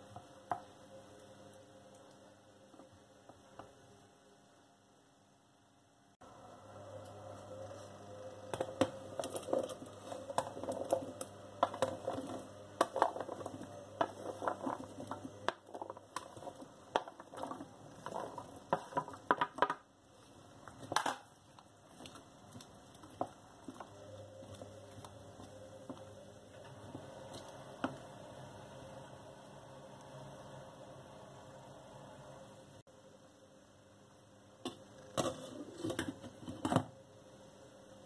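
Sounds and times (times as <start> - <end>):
vegetables clattering into saucepan: 8.6 - 19.8.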